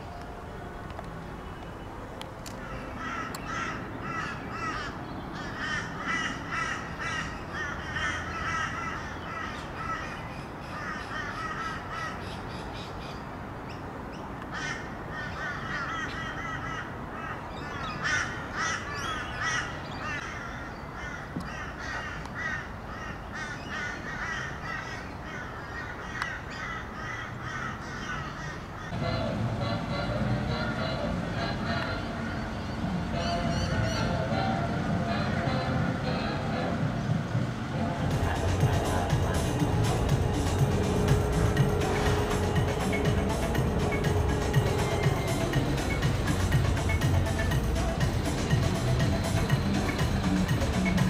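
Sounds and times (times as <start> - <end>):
flock of birds calling: 1.6 - 13.2, 14.5 - 29.0, 38.1 - 51.0.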